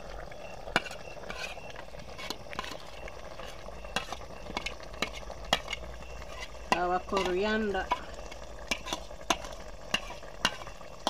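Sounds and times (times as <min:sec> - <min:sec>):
stew sizzling: 0:00.0 - 0:11.0
metal spoon scraping a plate: 0:00.7 - 0:07.4, 0:08.7 - 0:10.7.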